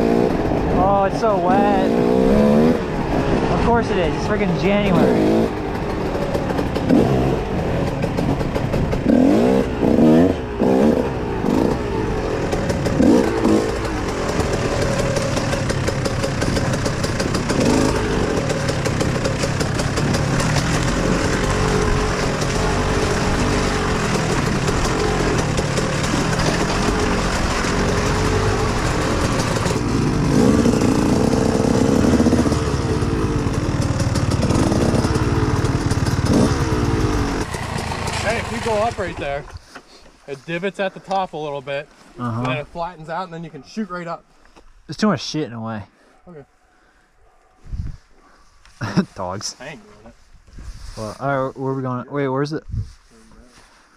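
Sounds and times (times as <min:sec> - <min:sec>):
dirt bike engine revving: 0:00.0 - 0:39.5.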